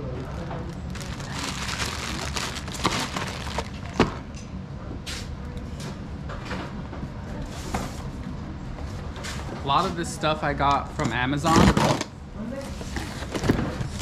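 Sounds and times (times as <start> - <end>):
steady low hum: 0.0 - 14.0
plastic bag rustling: 0.2 - 4.1.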